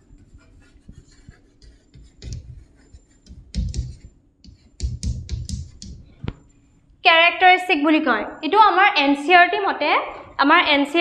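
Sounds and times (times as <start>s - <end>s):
pen scratching on paper: 0.0s - 6.0s.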